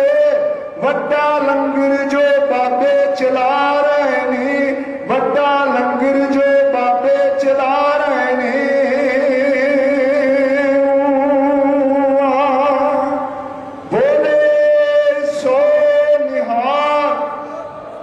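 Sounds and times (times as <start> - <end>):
man singing long held notes: 13.9 - 18.0.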